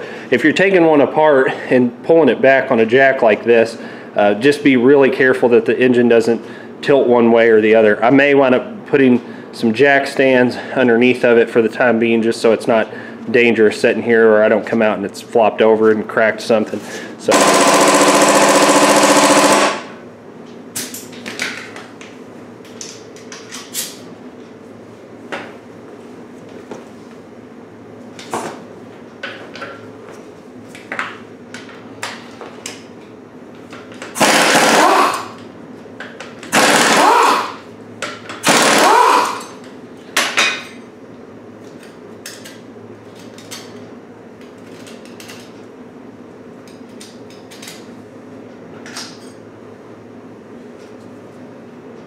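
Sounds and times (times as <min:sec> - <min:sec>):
impact wrench hammering: 0:17.3 - 0:19.9, 0:34.1 - 0:35.4, 0:36.4 - 0:39.5.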